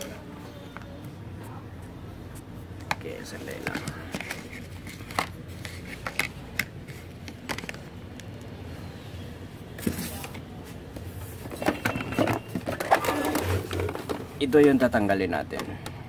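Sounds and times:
hands handling plastic printer casing: 0:02.8 - 0:08.5, 0:11.4 - 0:16.0.

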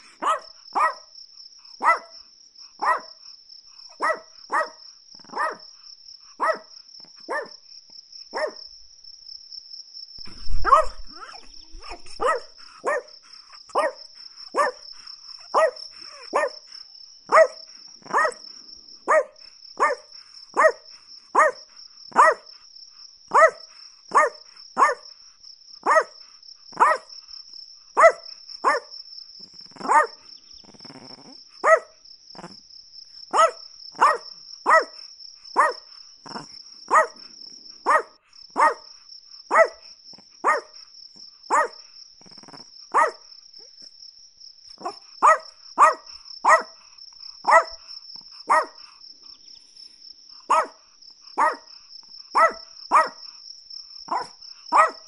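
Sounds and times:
small dog barking: 0:00.0 - 0:01.2, 0:01.8 - 0:02.2, 0:02.8 - 0:03.2, 0:03.9 - 0:05.7, 0:06.4 - 0:07.6, 0:08.3 - 0:08.6, 0:10.3 - 0:18.5, 0:19.1 - 0:22.5, 0:23.3 - 0:25.1, 0:25.8 - 0:27.1, 0:28.0 - 0:28.9, 0:29.7 - 0:32.6, 0:33.3 - 0:38.9, 0:39.5 - 0:40.8, 0:41.5 - 0:43.8, 0:44.8 - 0:49.0, 0:50.5 - 0:50.8, 0:51.4 - 0:53.4, 0:54.1 - 0:55.0
high insect trill: 0:00.0 - 0:55.0.

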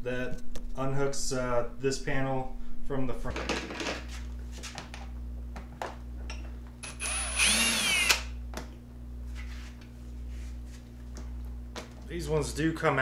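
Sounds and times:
cordless drill motor whine: 0:06.8 - 0:08.4.

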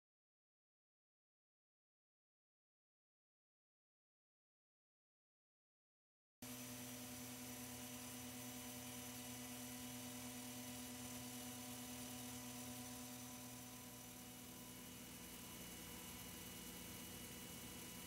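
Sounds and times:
faint steady hum with tones: 0:06.4 - 0:18.0.

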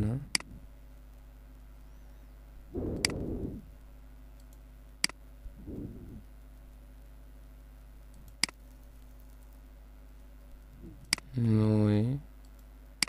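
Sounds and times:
faint steady hum: 0:00.0 - 0:13.0
computer mouse clicks: 0:03.0 - 0:03.4, 0:04.3 - 0:05.2, 0:08.1 - 0:09.6, 0:12.4 - 0:12.7.

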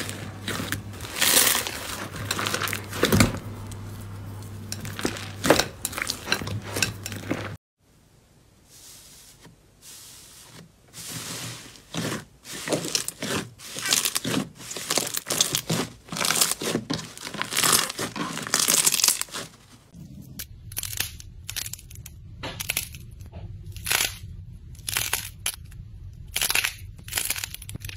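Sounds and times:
slime crackling and popping: 0:26.2 - 0:27.9.

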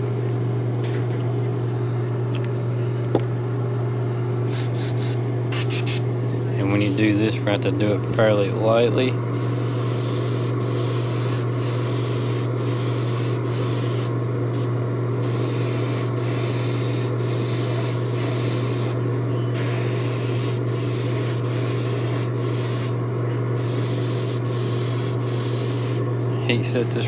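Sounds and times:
steady low hum: 0:00.0 - 0:27.0
airbrush hissing: 0:04.5 - 0:06.0, 0:09.3 - 0:19.0, 0:19.6 - 0:23.0, 0:23.6 - 0:26.0.

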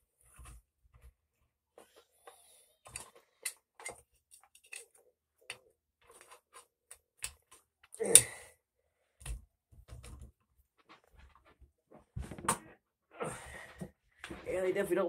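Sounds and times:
clicks and taps of metal parts: 0:02.9 - 0:08.0.

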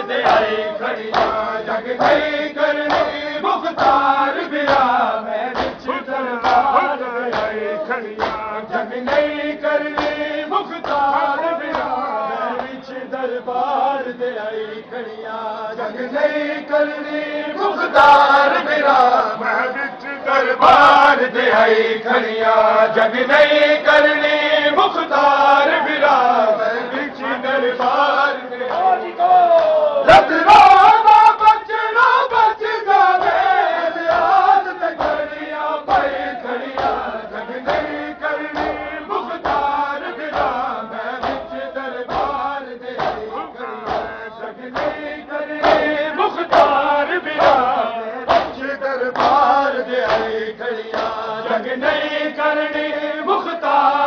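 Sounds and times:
men chanting a lament in unison: 0:00.0 - 0:54.0
chest-beating slaps: 0:00.2 - 0:11.1, 0:11.7 - 0:12.0, 0:33.2 - 0:51.2.

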